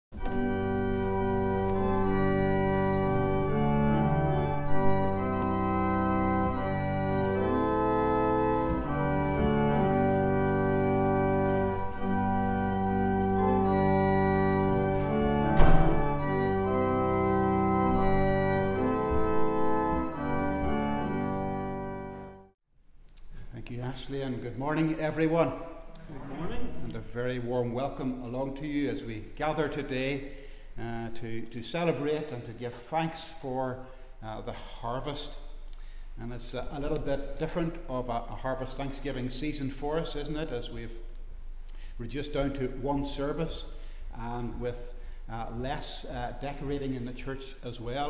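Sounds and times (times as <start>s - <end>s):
organ playing slow chords: 0.2s - 22.6s, 33.2s - 48.0s
brief knock: 15.6s - 16.0s.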